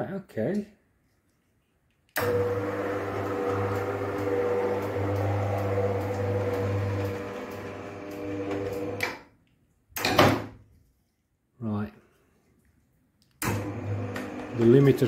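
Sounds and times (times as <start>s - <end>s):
garage door motor humming: 2.2s - 9.2s, 13.4s - 15.0s.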